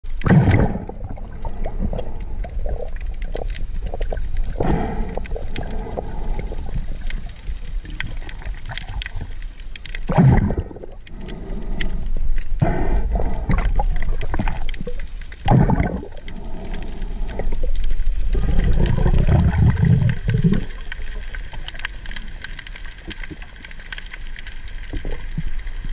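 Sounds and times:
muffled underwater rumble: 0.0 - 25.9
gurgling rushing water surges: 12.6 - 25.9.

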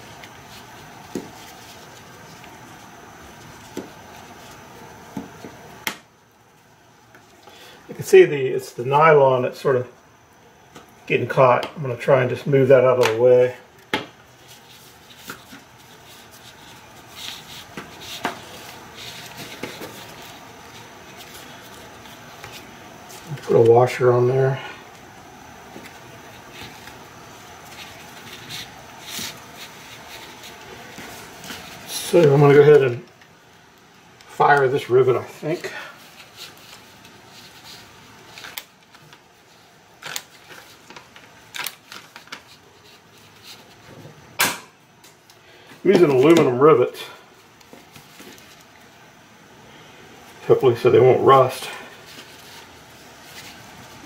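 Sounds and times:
soft rustling of webbing: 14.2 - 44.0, 50.3 - 54.0.

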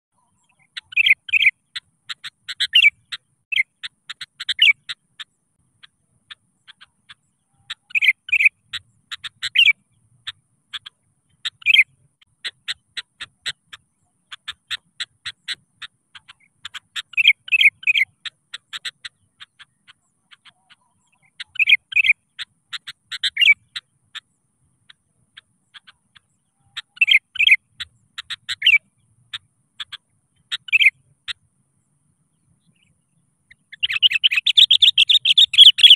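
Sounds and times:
bird chirping: 0.1 - 35.9
bird whistled notes: 33.8 - 35.9.

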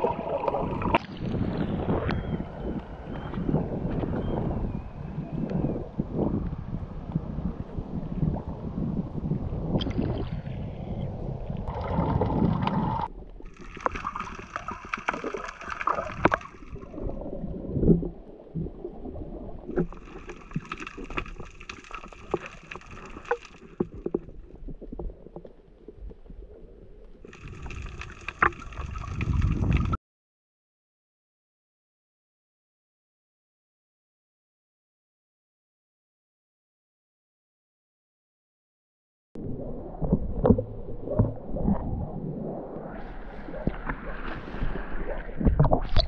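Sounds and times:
crackling clicks underwater: 0.0 - 1.4, 9.8 - 10.4, 11.0 - 30.0, 45.4 - 46.0
underwater gurgling: 0.0 - 30.0, 39.4 - 46.0
water sloshing: 11.6 - 26.4, 27.0 - 30.0.

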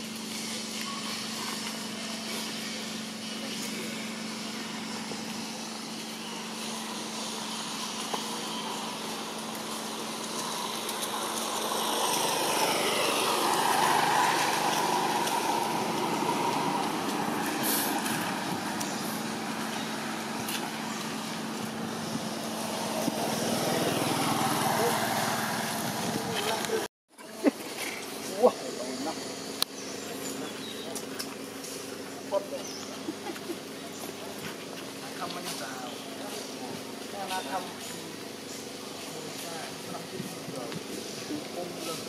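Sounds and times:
vehicle driving past: 0.4 - 26.9.

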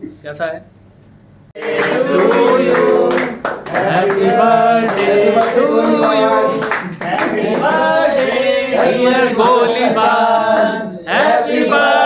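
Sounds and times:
hands clapping: 1.6 - 9.0, 10.1 - 11.4
men singing together: 1.6 - 12.0.

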